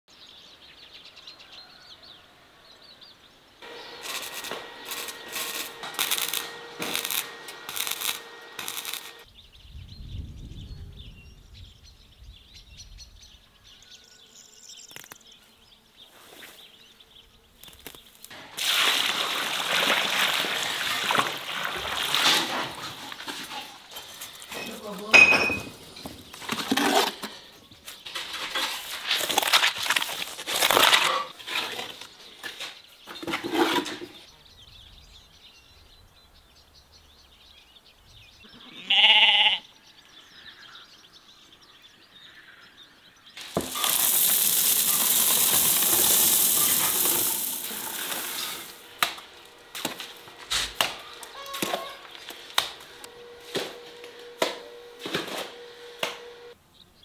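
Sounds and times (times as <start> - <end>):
goat bleating: 38.5 - 39.7
steady hiss: 43.4 - 49.6.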